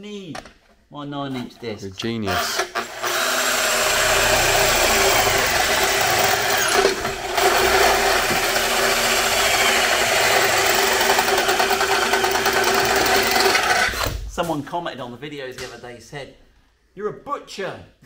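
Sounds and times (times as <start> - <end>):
cordless drill boring through metal: 2.3 - 14.1.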